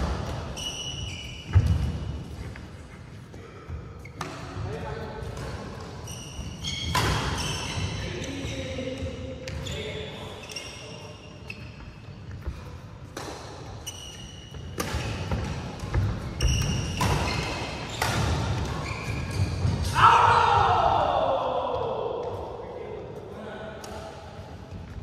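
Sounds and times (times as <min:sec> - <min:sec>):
sneaker squeaks on court: 0:00.5 - 0:02.1, 0:05.4 - 0:12.2, 0:13.7 - 0:19.9.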